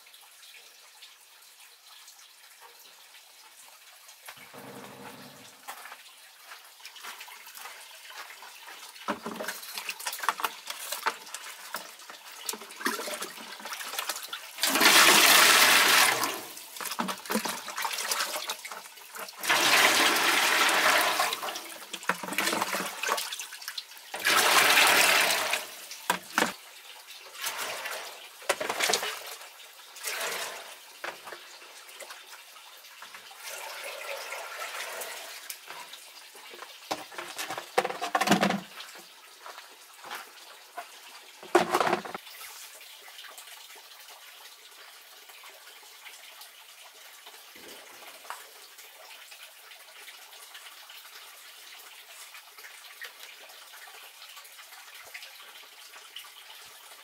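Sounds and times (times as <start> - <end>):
water pouring into a pot: 6.8 - 32.2, 33.0 - 40.2.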